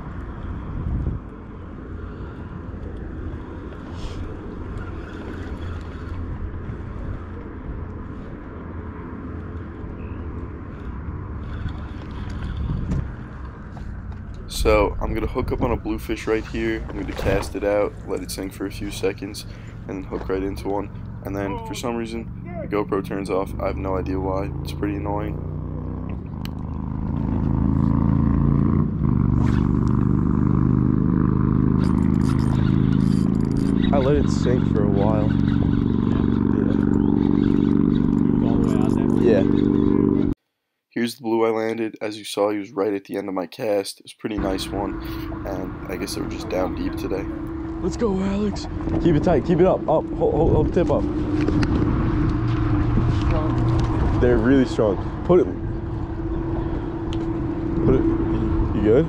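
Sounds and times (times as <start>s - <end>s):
wind buffeting microphone: 0.0s - 8.7s, 9.5s - 19.9s, 47.0s - 59.0s
motor engine humming: 0.0s - 40.4s, 44.4s - 59.0s.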